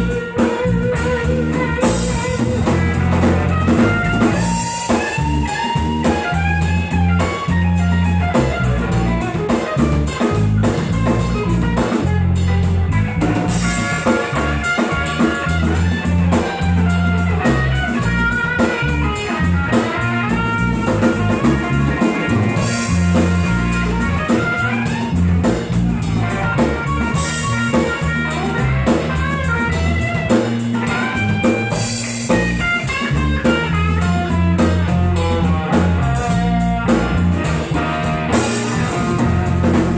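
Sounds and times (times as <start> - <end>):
drum kit: 0.0 - 39.9
electric bass: 0.0 - 39.9
electric guitar single-note runs: 0.0 - 39.9.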